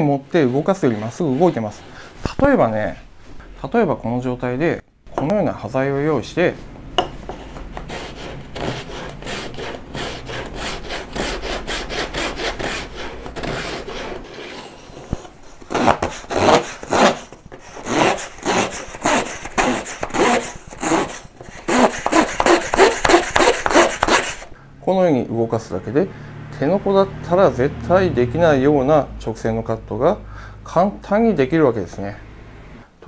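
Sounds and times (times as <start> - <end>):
saw blade sawing wood: 7.8 - 15.0, 15.7 - 24.5.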